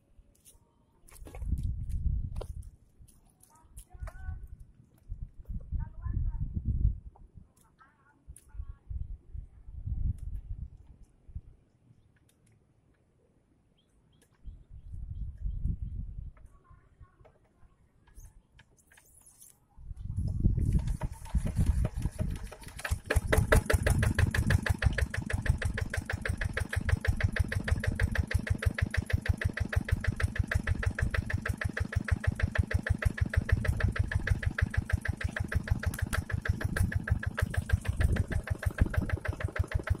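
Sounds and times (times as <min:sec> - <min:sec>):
diesel engine running: 0:20.7 - 0:40.0.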